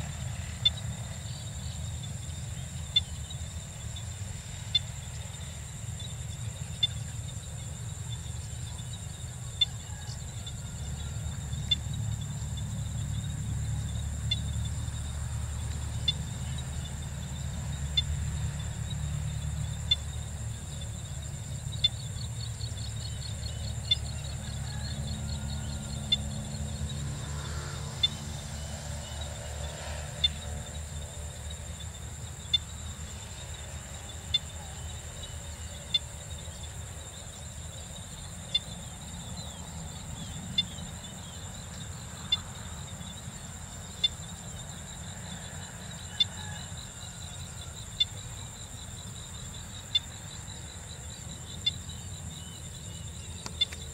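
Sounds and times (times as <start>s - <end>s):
insect chorus trilling: 0.0s - 53.9s.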